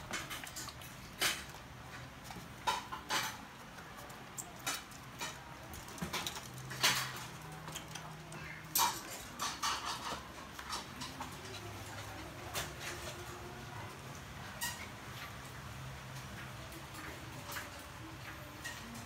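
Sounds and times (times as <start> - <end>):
puppies clicking on plastic floor: 0.0 - 19.0.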